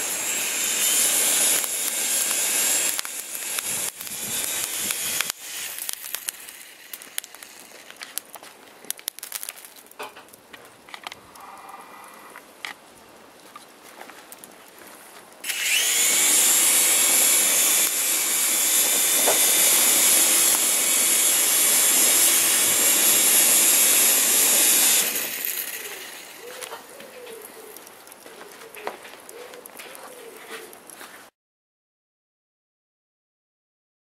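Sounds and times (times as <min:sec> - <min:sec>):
toy helicopter motor whirring: 0:00.0 - 0:08.0, 0:15.4 - 0:27.3.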